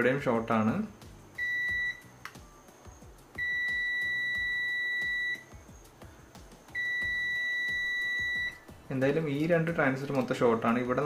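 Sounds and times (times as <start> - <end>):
multimeter continuity beeping: 1.4 - 2.2, 3.4 - 5.6, 6.7 - 8.6.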